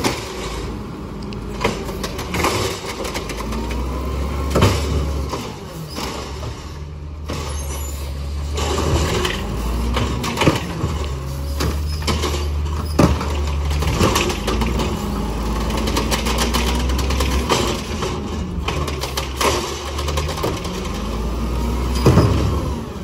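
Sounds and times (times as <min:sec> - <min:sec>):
garbage truck engine rumble: 0:00.0 - 0:23.0
gripper and plastic cart clanking: 0:08.4 - 0:21.2.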